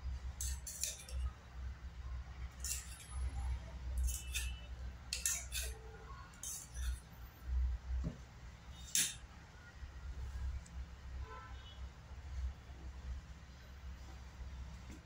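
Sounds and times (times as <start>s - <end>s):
metal spoon clinking on steel bowl: 0.4s - 1.3s, 2.5s - 3.4s, 4.0s - 7.1s, 8.8s - 9.2s.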